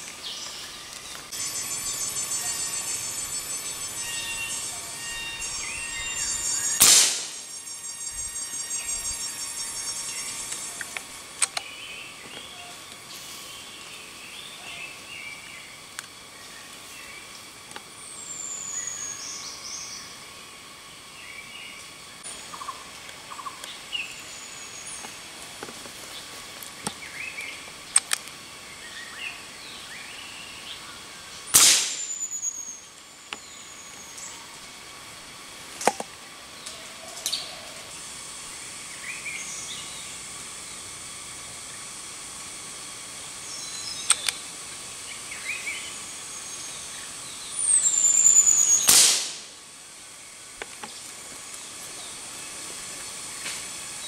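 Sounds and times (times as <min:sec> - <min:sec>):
outdoor background noise: 0:00.0 - 0:54.0
birds whistling and chirping: 0:00.2 - 0:11.0, 0:45.3 - 0:48.9
loud gunshot with echo: 0:06.8 - 0:07.4, 0:31.6 - 0:32.1, 0:48.9 - 0:49.5
sharp clicks: 0:27.9 - 0:28.4, 0:44.0 - 0:44.4.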